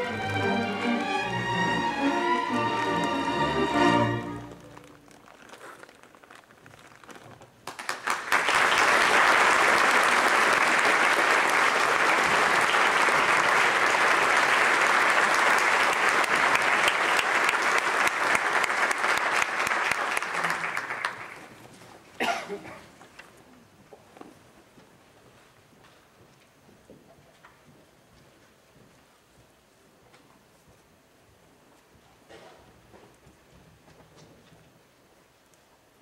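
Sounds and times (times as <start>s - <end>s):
audience applauding: 0.0s - 5.2s, 7.6s - 21.7s.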